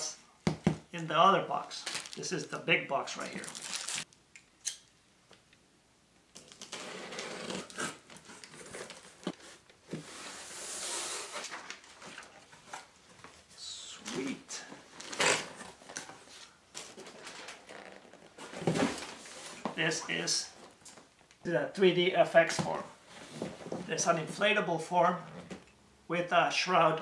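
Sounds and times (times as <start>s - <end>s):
cardboard ripping: 6.4s - 9.4s
cardboard scraping and rustling: 14.9s - 19.8s.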